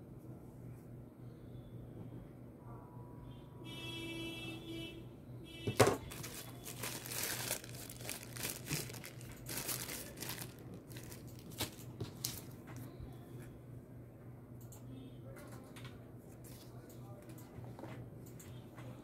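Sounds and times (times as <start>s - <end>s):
plastic bag crinkling: 5.8s - 12.6s.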